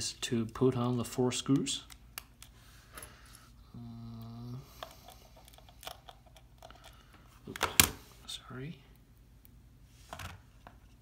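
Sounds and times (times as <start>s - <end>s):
person humming: 3.6s - 4.8s.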